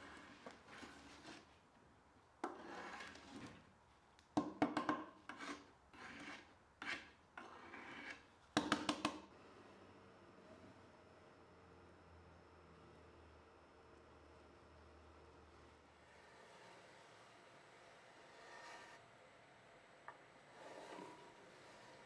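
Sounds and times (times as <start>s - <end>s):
hand scraper scraping wood: 0.0s - 1.6s, 2.4s - 3.7s, 5.0s - 8.2s, 20.5s - 22.0s.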